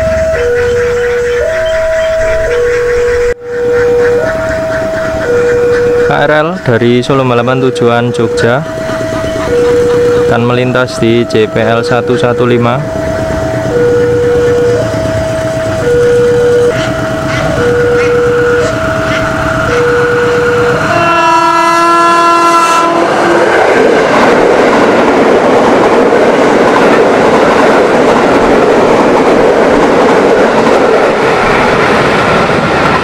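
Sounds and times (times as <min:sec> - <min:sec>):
train horn blast: 0:00.0 - 0:06.6, 0:08.6 - 0:23.7
train wheels clattering on rails: 0:00.0 - 0:21.2, 0:21.8 - 0:33.0
level crossing alarm: 0:00.0 - 0:33.0.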